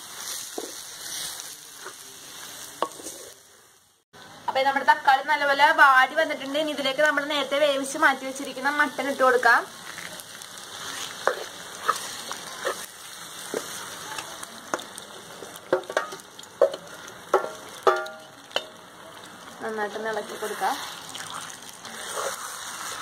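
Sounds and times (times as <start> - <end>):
spoon scraping wet meat: 20.3 - 23.0.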